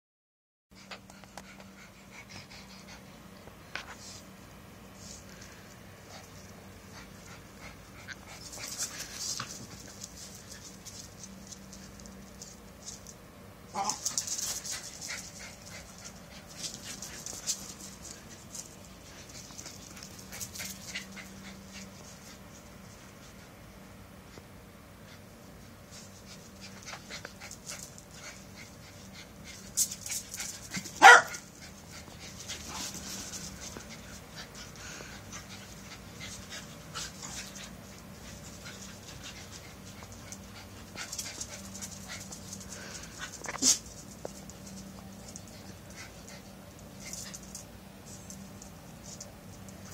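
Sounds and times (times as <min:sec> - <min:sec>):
dog panting: 0:00.8 - 0:03.4.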